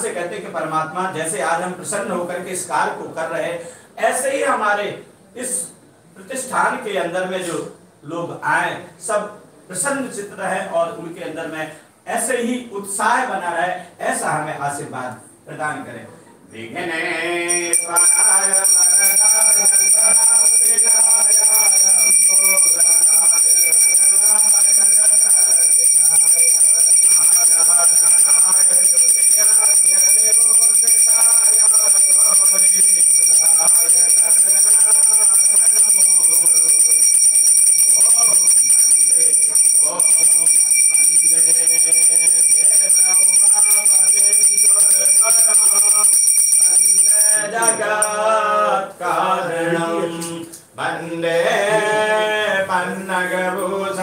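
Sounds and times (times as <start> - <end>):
hand bell ringing: 17.5 - 48.3.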